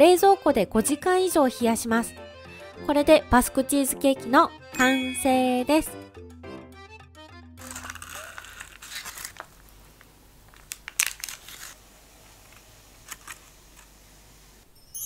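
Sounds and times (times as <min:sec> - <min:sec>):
paper crackles: 0:07.6 - 0:14.0
baking parchment crinkling: 0:07.6 - 0:14.1.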